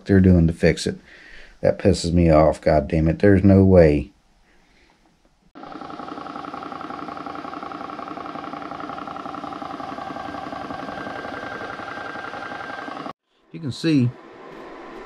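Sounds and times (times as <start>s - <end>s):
air compressor pulsing: 5.6s - 13.2s.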